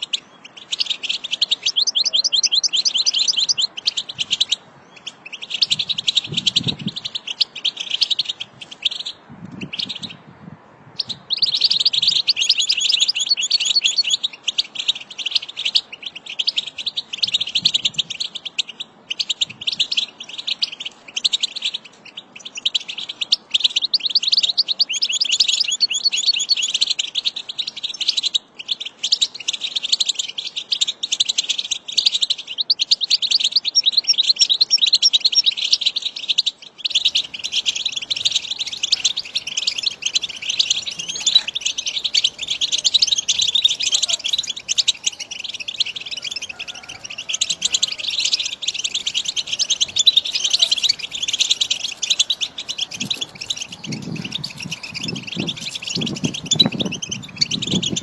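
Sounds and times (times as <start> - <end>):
bird twittering song: 0.0 - 10.2, 11.0 - 58.0.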